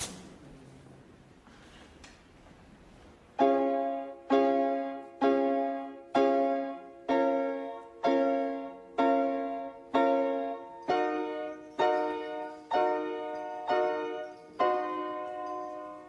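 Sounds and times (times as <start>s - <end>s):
piano playing slow chords: 3.4s - 16.0s.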